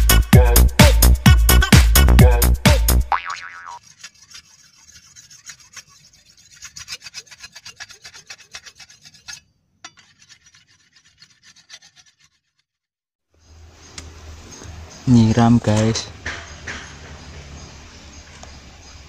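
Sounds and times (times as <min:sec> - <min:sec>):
blade sharpened on whetstone: 0:03.8 - 0:12.6.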